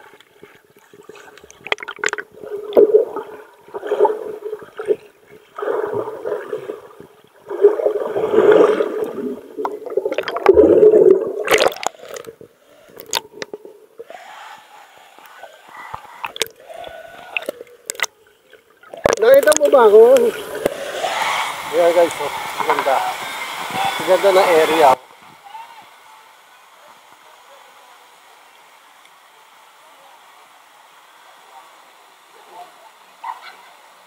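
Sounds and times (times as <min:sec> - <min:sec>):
water sloshing and gurgling: 0:00.0 - 0:14.2, 0:15.9 - 0:21.7.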